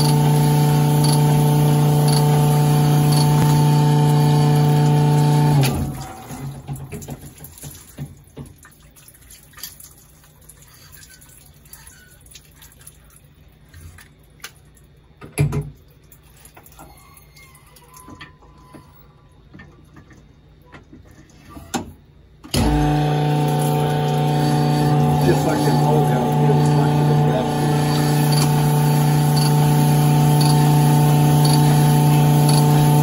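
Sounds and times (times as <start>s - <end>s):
honing machine humming: 0.0s - 6.2s, 22.5s - 33.0s
oil trickling: 0.0s - 16.9s, 22.8s - 33.0s.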